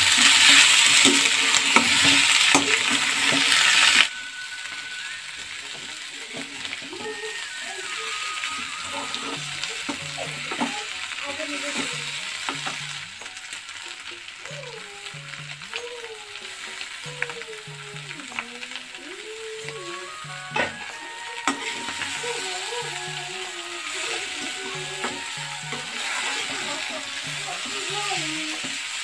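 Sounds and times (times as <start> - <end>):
potatoes sizzling in hot oil: 0.0 - 29.0
soft background music: 0.2 - 29.0
spoon scraping a pan: 4.7 - 14.2, 19.8 - 29.0.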